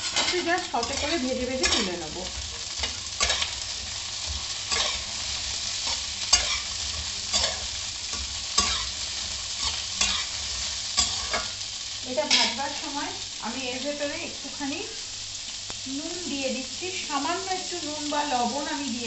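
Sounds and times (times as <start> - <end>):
metal spatula scraping a pan: 0.0 - 11.6
vegetables sizzling in oil: 0.0 - 19.0.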